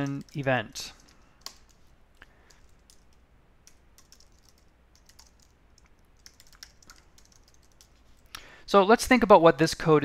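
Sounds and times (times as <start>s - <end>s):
typing on keyboard: 0.0s - 1.8s, 2.4s - 8.0s.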